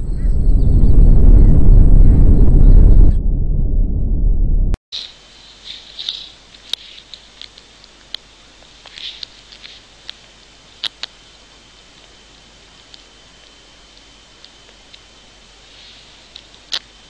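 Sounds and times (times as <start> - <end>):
loud low rumbling: 0.0 - 4.8
faint clicks: 6.0 - 10.2.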